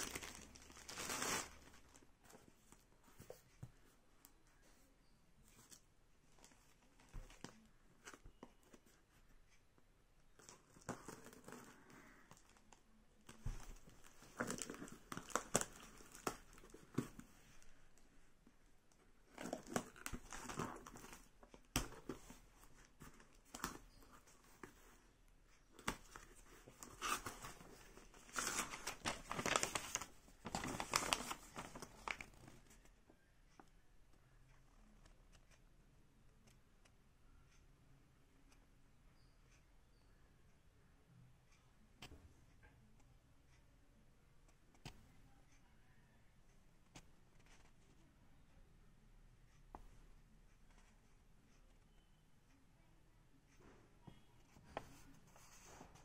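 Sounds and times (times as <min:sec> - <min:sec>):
paper and packaging crinkling: 0:00.0 - 0:02.4, 0:13.3 - 0:17.3, 0:19.3 - 0:24.9, 0:25.8 - 0:32.7.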